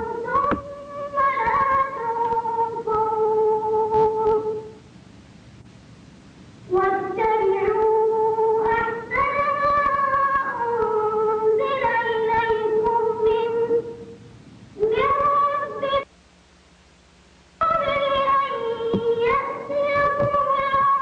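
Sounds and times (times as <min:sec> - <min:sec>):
child reciting melodic chant: 0:00.0 - 0:04.7, 0:06.7 - 0:14.0, 0:14.8 - 0:16.1, 0:17.6 - 0:21.0.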